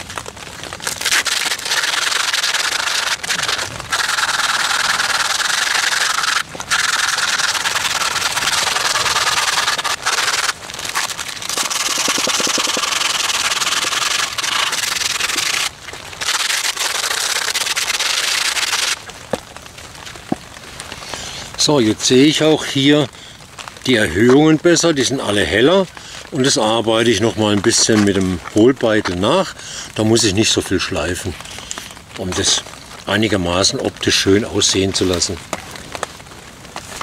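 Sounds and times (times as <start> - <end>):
sandpaper scratching on wood: 1.1 - 10.6, 11.5 - 19.0.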